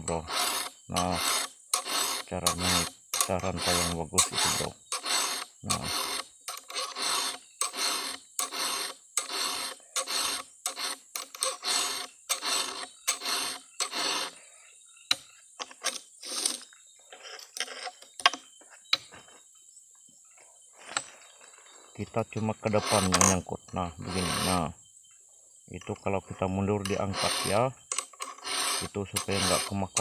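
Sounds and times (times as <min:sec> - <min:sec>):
file rasping on chainsaw chain: 0:00.0 - 0:14.5, 0:15.1 - 0:18.0, 0:22.2 - 0:24.7, 0:26.4 - 0:30.0.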